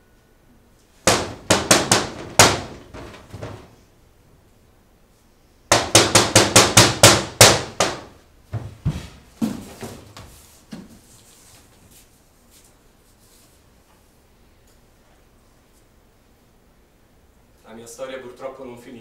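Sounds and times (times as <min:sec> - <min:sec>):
loud sharp blows: 0:01.0 - 0:03.7, 0:05.7 - 0:08.2.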